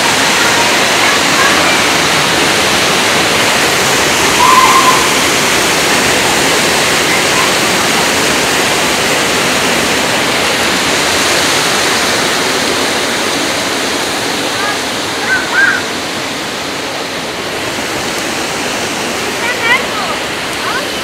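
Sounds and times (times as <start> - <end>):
waterfall rushing into pool: 0.0 - 21.0
brief high-pitched sound: 4.3 - 5.3.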